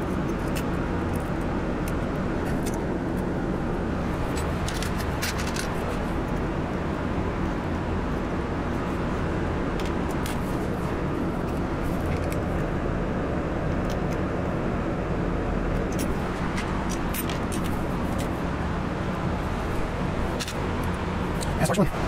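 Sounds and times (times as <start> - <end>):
light clicks of metal parts: 0.0 - 3.3, 4.1 - 6.4, 15.7 - 18.4, 19.8 - 21.8
steady background rumble: 0.0 - 22.0.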